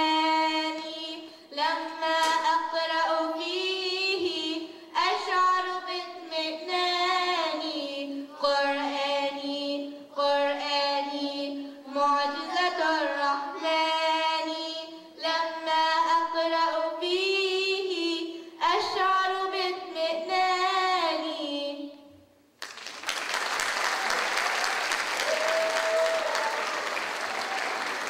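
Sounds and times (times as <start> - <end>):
girls singing unaccompanied: 0.0 - 22.0.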